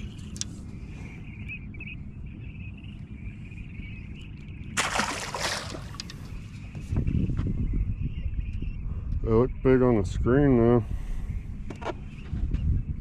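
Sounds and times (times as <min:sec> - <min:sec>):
steady low rumble: 0:00.0 - 0:13.0
fish splashing in water: 0:04.8 - 0:06.2.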